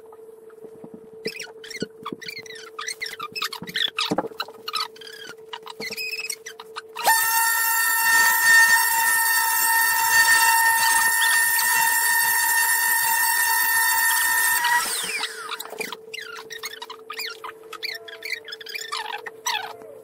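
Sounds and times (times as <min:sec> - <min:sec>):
orbital sander whining: 0:07.0 - 0:16.0.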